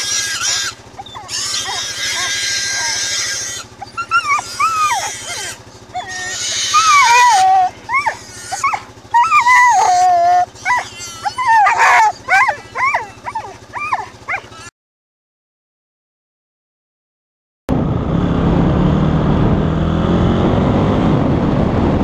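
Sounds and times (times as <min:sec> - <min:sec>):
pig squealing: 0:00.0 - 0:14.7.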